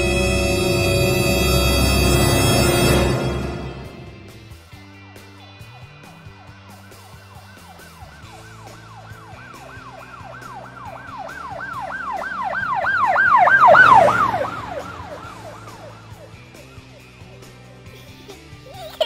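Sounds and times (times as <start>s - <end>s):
police siren yelping: 5.2s - 17.7s
faint background music: 14.1s - 19.0s.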